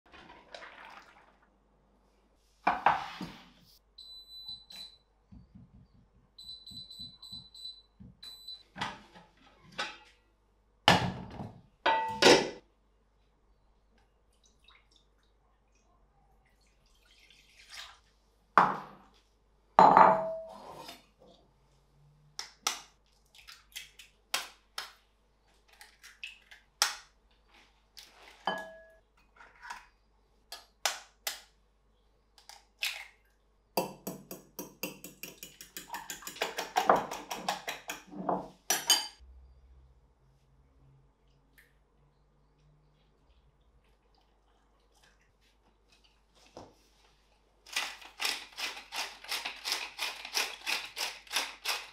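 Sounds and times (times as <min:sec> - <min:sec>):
steel cookware and glass bowls clanking: 0:11.9 - 0:12.6, 0:28.5 - 0:29.0, 0:34.9 - 0:39.2.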